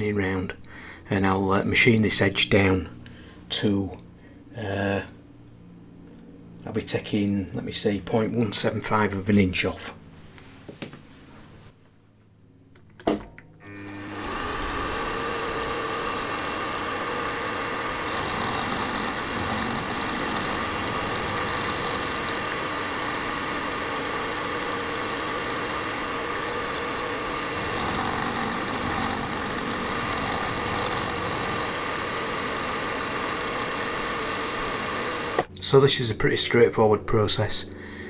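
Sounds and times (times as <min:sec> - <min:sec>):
milling machine cutting metal: 0:13.6 - 0:35.5.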